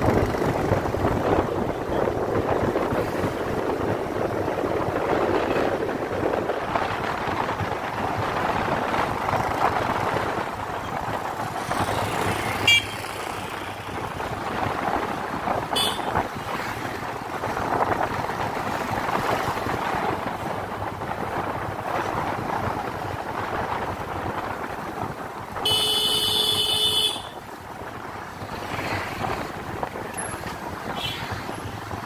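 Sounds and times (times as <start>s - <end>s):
road and wind noise: 0.0s - 32.0s
car horn toots: 12.6s - 13.0s, 15.7s - 16.2s, 25.6s - 27.4s.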